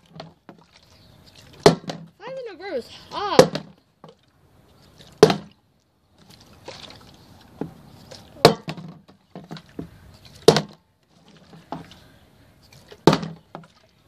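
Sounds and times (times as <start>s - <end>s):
plastic bottle landing on wooden deck: 0.0s - 0.6s, 1.6s - 2.1s, 3.4s - 4.2s, 5.2s - 5.6s, 8.4s - 10.8s, 13.0s - 13.7s
water sloshing in bottle: 0.0s - 2.4s, 3.1s - 14.0s.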